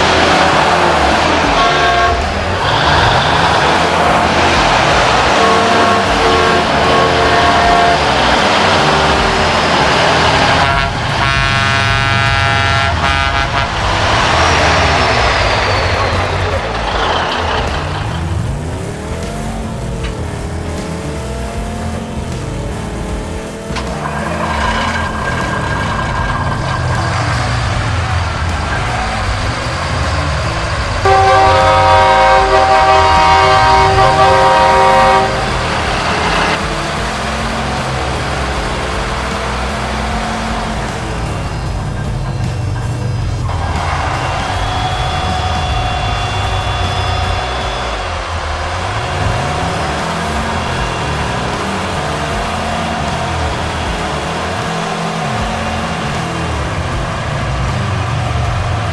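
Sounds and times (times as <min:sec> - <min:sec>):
truck air horn: 0:00.0 - 0:17.8, 0:30.4 - 0:36.7
truck engine rumbling: 0:00.0 - 0:58.9.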